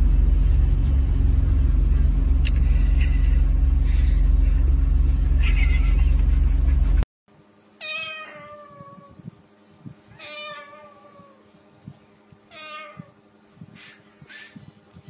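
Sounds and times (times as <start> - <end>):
cockatoo mimicking cat meows: 7.8 - 9.2, 10.1 - 11.4, 12.5 - 13.2.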